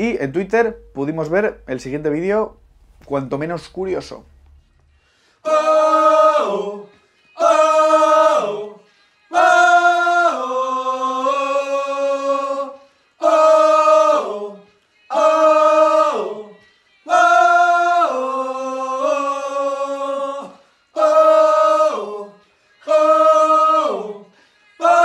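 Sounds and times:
men singing a cappella harmony: 0:05.4 - 0:25.0.

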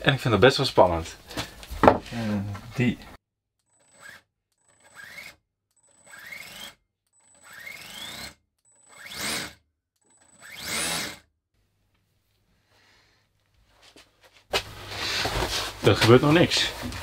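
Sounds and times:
electric starter motor whining: 0:03.8 - 0:11.3.

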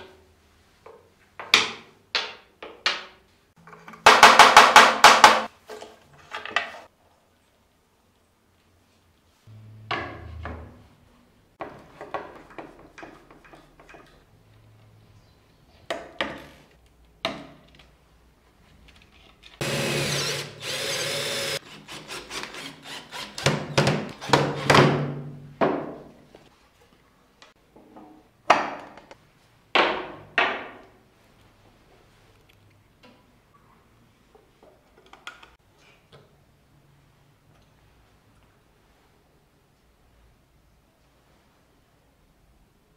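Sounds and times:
small power tool running: 0:19.6 - 0:21.6.

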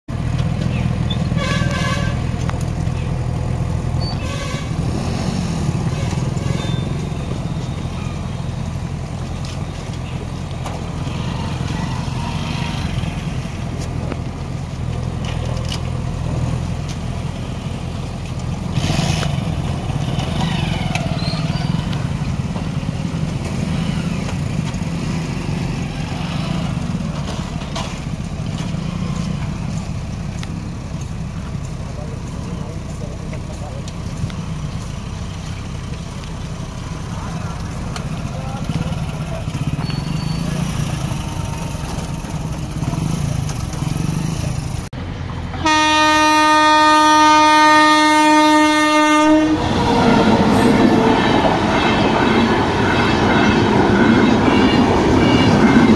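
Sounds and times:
small motorcycle engines: 0:04.0 - 0:14.2, 0:18.2 - 0:44.9.

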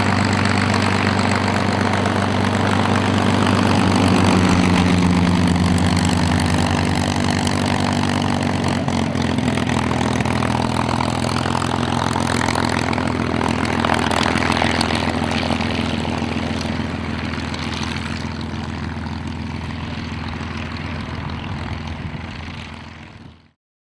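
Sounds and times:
propeller aircraft engine taxiing: 0:00.0 - 0:23.6.

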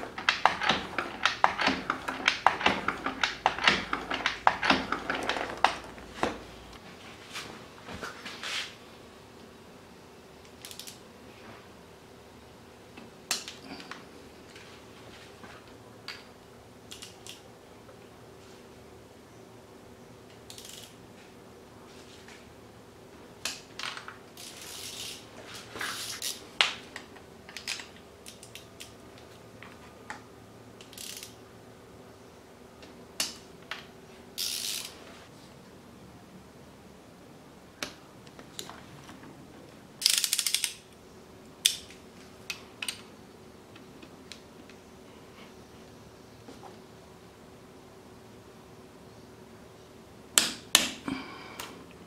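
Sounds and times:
ratchet wrench clicking: 0:10.6 - 0:11.0, 0:20.5 - 0:21.0, 0:24.4 - 0:25.2, 0:30.8 - 0:31.4, 0:34.4 - 0:35.0, 0:40.0 - 0:40.8.

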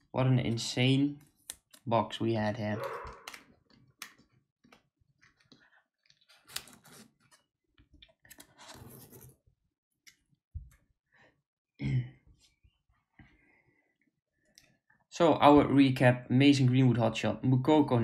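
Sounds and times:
cards sliding rustle: 0:06.3 - 0:07.4.

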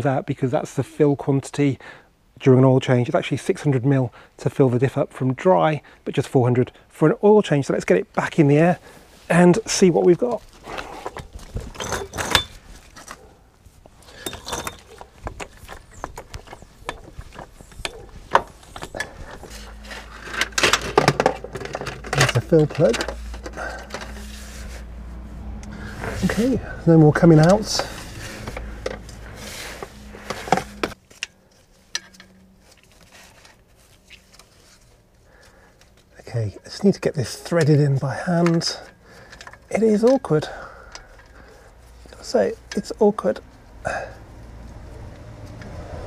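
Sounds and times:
hands clicking and tapping parts: 0:14.1 - 0:24.3.

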